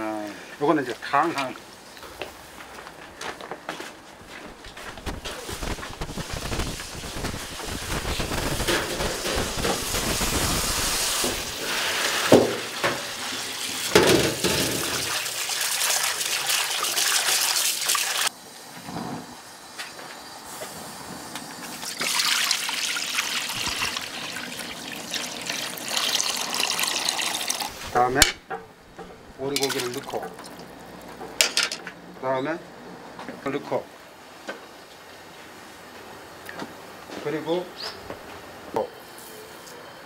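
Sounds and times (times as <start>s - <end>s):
tap water running into bowl: 21.8s - 27.7s, 29.6s - 30.7s
liquid pouring into pan: 21.8s - 27.8s, 29.6s - 30.7s
hands splashing water: 29.6s - 30.6s.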